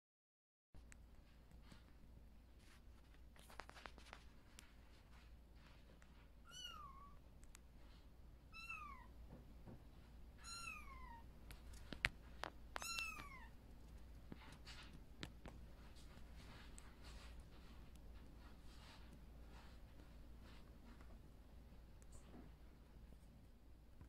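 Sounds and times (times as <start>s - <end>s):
kitten meowing: 6.5s - 7.2s, 8.5s - 9.1s, 10.4s - 11.2s, 12.8s - 13.5s.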